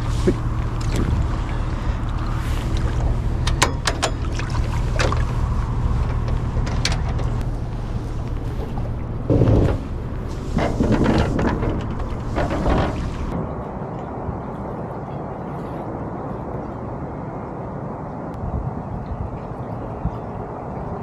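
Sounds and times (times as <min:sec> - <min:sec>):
low rumble: 0:00.0 - 0:15.4.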